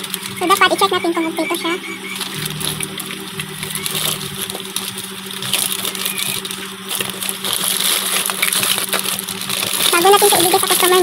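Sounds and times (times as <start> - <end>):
steady low hum: 0.0 - 11.0
plastic bag rustling: 3.8 - 11.0.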